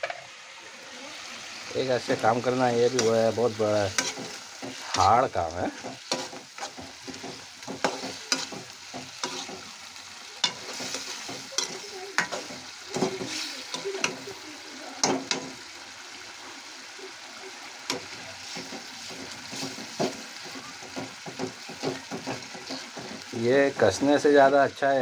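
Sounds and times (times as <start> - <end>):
gravy sizzling in a metal pan: 0.0 - 25.0
spoon knocking and scraping pan: 2.9 - 9.8, 10.4 - 14.2, 15.0 - 15.6, 17.9 - 23.4.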